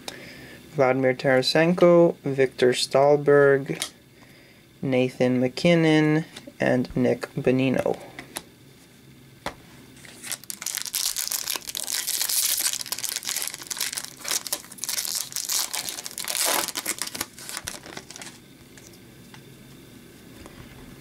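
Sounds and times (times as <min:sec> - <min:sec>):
foil wrapper crinkling and tearing: 0:10.0 - 0:18.4.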